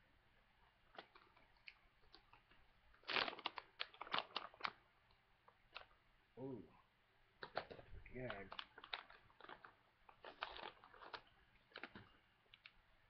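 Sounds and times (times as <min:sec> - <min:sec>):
plastic pouch crinkling: 0:00.9 - 0:04.9, 0:07.4 - 0:12.8.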